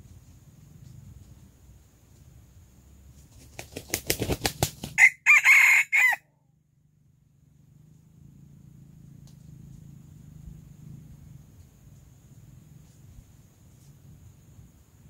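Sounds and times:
rooster wings flapping: 3.1 - 5.5
rooster crowing: 5.0 - 6.3.

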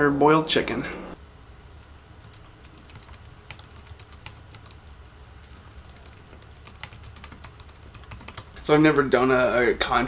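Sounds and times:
steady low hum: 0.0 - 10.0
keyboard typing clicks: 1.8 - 8.5.

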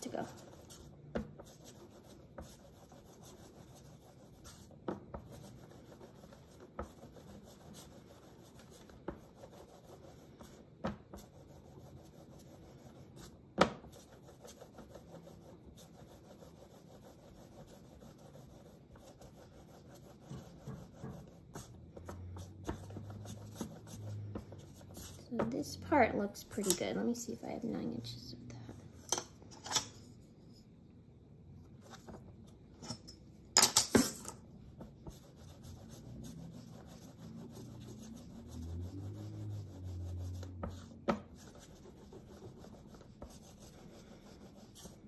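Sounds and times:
clay rubbing on board: 0.0 - 27.2, 34.0 - 45.0.

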